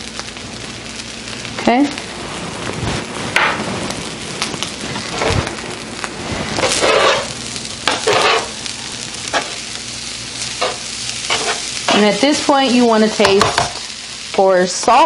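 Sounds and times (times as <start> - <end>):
rice sizzling on griddle: 0.0 - 15.0
tongs scraping griddle: 6.2 - 14.5.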